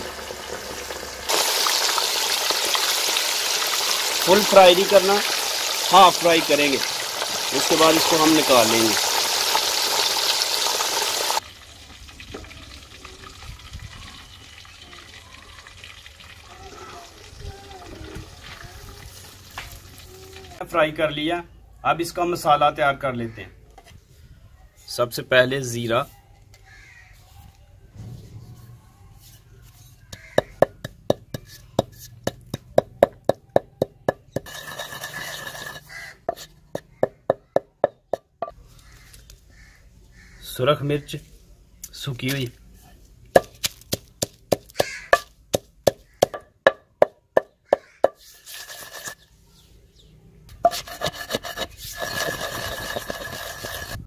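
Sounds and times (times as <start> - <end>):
fish sizzling in hot oil: 0.0 - 16.5, 18.2 - 20.4, 50.8 - 54.0
low rumble: 28.0 - 29.2
pestle pounding in stone mortar: 30.1 - 38.5, 43.3 - 49.2, 50.6 - 54.0.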